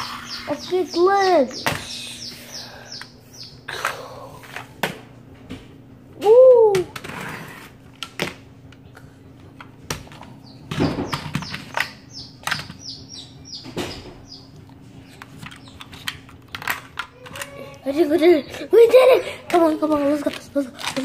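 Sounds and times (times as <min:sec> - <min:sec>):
high bird-like chirps: 0:00.0 - 0:03.7, 0:10.4 - 0:14.5
plastic toys clicking on wooden floor: 0:15.2 - 0:17.9, 0:19.5 - 0:21.0.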